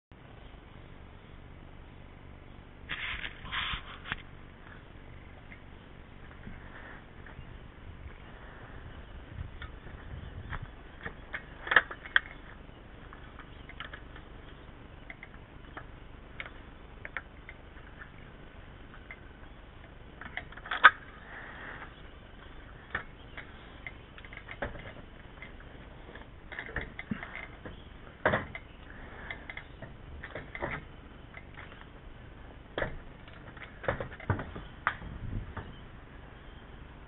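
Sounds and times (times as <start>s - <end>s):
sharp clicks and knocks: 9.4s - 32.0s, 32.7s - 35.8s.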